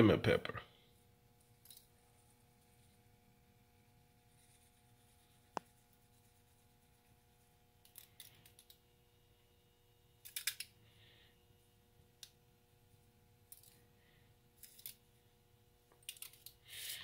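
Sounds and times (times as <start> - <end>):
spice shaker rattling: 16.0 - 17.0.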